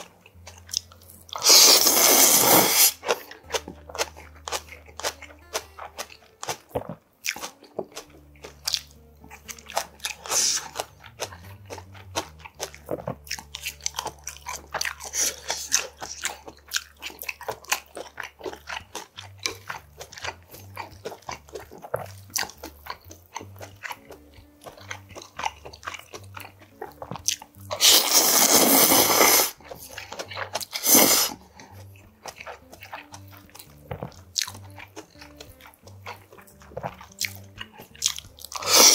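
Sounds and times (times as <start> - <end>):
crunchy wet chewing: 0.0 - 38.9
loud slurp: 1.4 - 3.2, 27.7 - 29.6, 30.7 - 31.5, 38.6 - 38.9.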